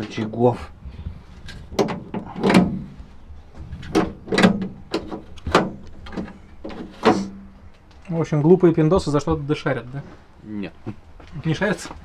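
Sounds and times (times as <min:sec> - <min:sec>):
door lock clacking: 0:01.7 - 0:02.9, 0:03.8 - 0:07.3.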